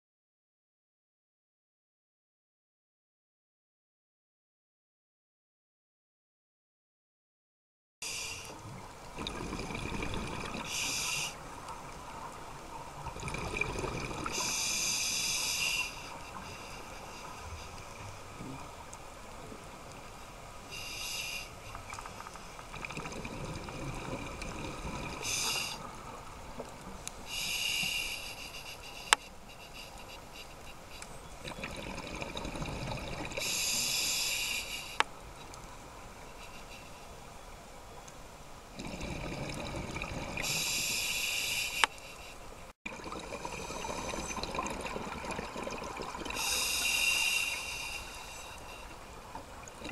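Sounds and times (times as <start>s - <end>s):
inhalation hiss: 8.0s - 8.6s, 10.6s - 11.4s, 14.3s - 18.6s, 20.7s - 21.8s, 25.2s - 25.9s, 27.3s - 31.0s, 33.4s - 35.0s, 40.4s - 42.4s, 46.3s - 49.0s
exhaled regulator bubbles: 9.1s - 11.1s, 13.0s - 14.8s, 22.7s - 25.7s, 31.4s - 33.9s, 38.8s - 40.9s, 42.9s - 48.2s.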